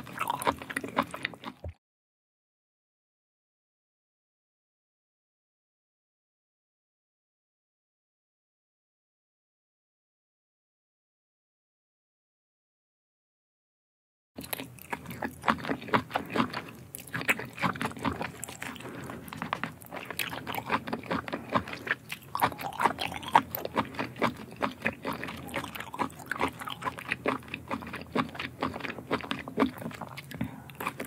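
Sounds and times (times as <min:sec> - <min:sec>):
person chewing: 0:00.0 - 0:01.8, 0:14.4 - 0:31.0.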